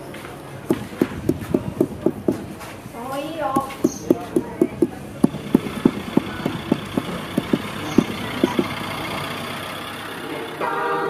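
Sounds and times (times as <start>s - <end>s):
hollow knocks: 0.7s - 2.8s, 3.5s - 9.5s
steady engine-like hum: 0.7s - 11.0s.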